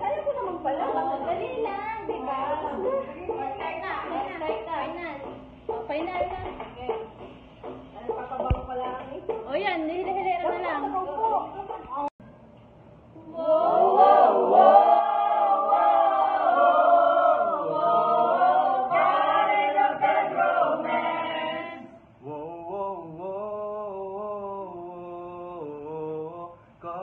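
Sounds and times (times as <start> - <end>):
group singing unaccompanied: 0.0 - 5.5, 13.2 - 27.0.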